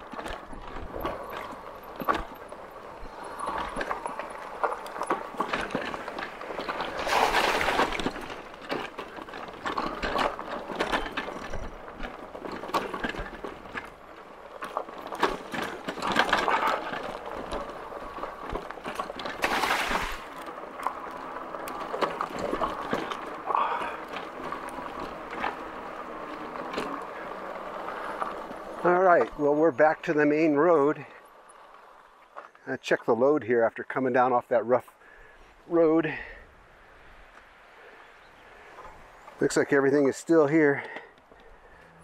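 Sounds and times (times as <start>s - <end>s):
bike frame rattling: 0.0s - 32.0s
tyres crunching on gravel: 0.0s - 36.4s, 38.4s - 42.0s.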